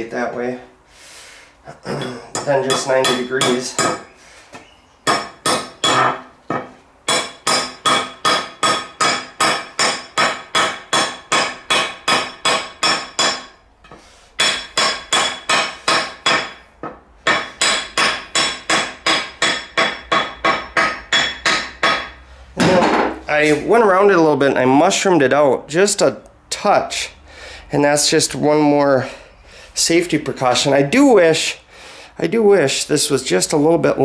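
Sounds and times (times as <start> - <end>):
hammer striking metal wedge: 2.3 - 4.1, 5.1 - 23.2.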